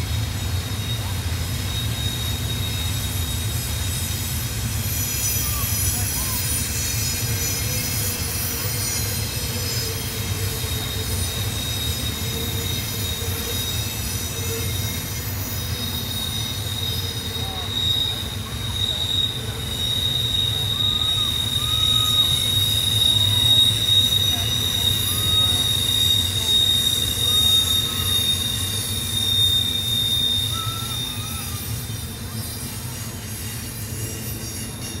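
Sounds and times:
rumble of rolling train cars: 0:00.0 - 0:35.0
train wheels squealing on rails: 0:00.0 - 0:35.0.

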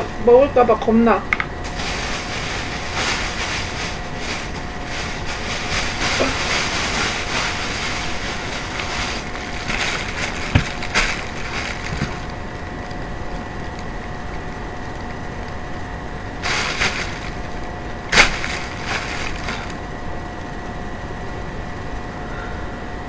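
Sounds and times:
steady hum: 0:00.0 - 0:23.0
plastic bags crinkling: 0:01.6 - 0:13.8, 0:16.4 - 0:19.9.

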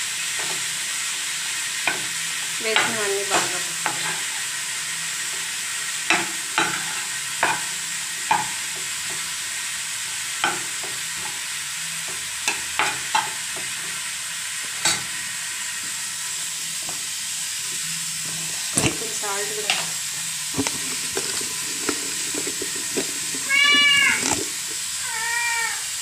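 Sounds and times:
fish sizzling in a pan: 0:00.0 - 0:26.0
spatula scraping and knocking pan: 0:01.8 - 0:04.3, 0:06.1 - 0:09.2, 0:12.4 - 0:13.8, 0:20.5 - 0:24.8.

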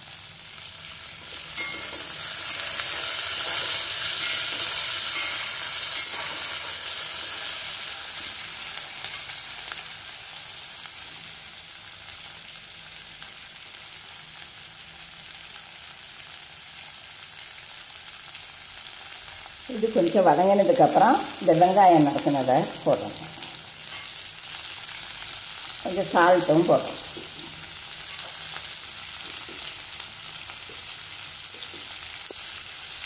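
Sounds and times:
vegetables sizzling in hot oil: 0:00.0 - 0:33.0
metal spatula stirring: 0:01.5 - 0:06.9.

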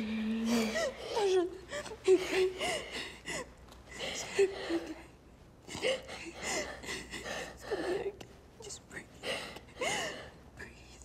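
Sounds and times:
girl crying with gasping breaths: 0:09.2 - 0:10.4.

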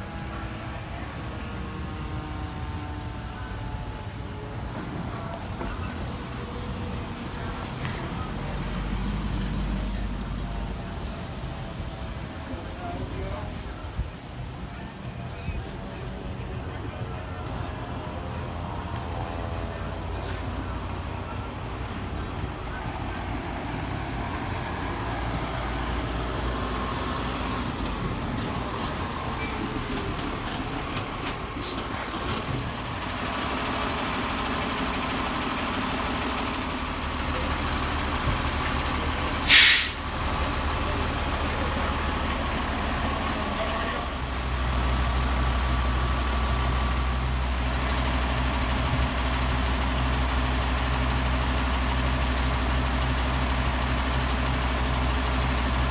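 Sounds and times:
fire engine diesel idling: 0:00.0 - 0:55.9
air brake hiss: 0:39.4 - 0:40.0
loud burst of noise: 0:39.5 - 0:40.1.

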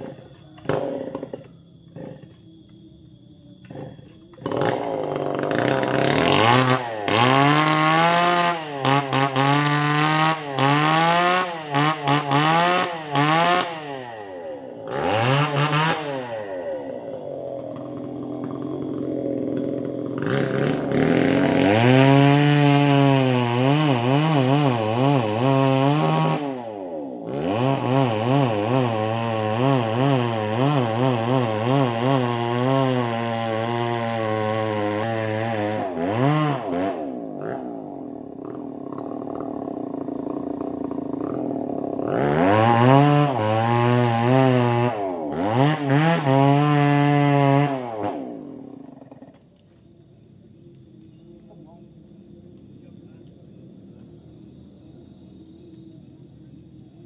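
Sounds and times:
chainsaw revving: 0:00.0 - 0:02.3, 0:03.6 - 0:49.4.

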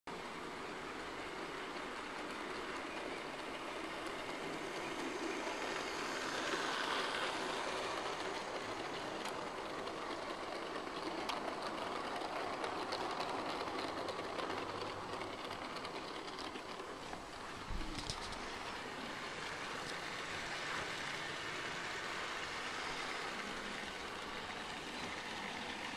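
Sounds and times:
model train motor whirr: 0:00.3 - 0:25.9
wheels clicking over rail joints: 0:00.3 - 0:25.9.

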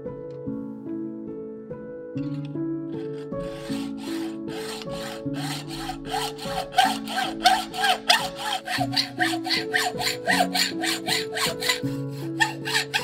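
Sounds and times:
background music with held notes: 0:00.0 - 0:13.0
hacksaw cutting metal tube: 0:03.0 - 0:13.0.

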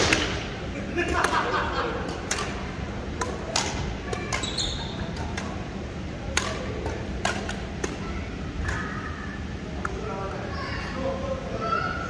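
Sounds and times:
badminton rackets hitting shuttlecock: 0:00.0 - 0:00.4, 0:01.1 - 0:05.6, 0:06.2 - 0:08.9.

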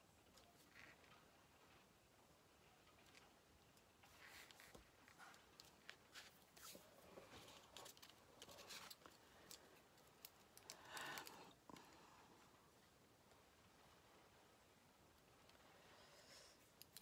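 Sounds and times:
paper rustling: 0:04.0 - 0:09.6.

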